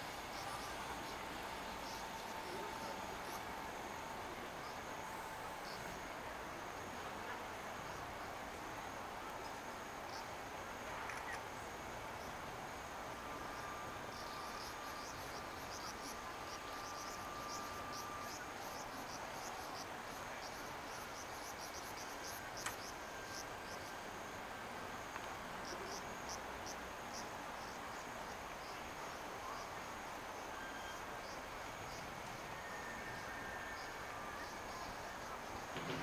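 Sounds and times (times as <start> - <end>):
background hiss: 0.0 - 36.0
insects chirping: 0.0 - 36.0.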